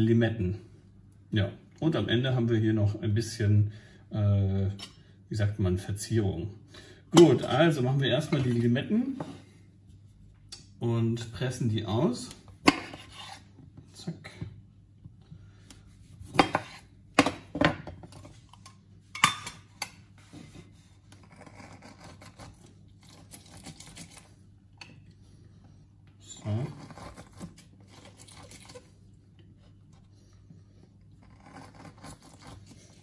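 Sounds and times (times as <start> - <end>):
citrus press squishing and scraping: 20.2 - 24.4, 26.2 - 33.0.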